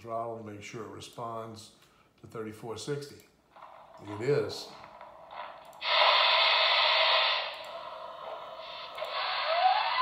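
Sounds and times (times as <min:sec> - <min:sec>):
steam hiss: 0:05.8 - 0:10.0.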